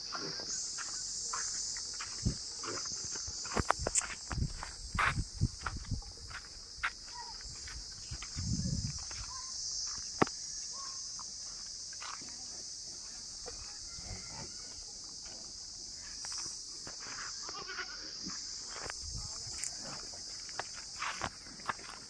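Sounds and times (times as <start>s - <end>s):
high-pitched insect drone: 0.0s - 22.0s
buffalo footfalls on dry dirt: 0.1s - 10.4s, 20.4s - 22.0s.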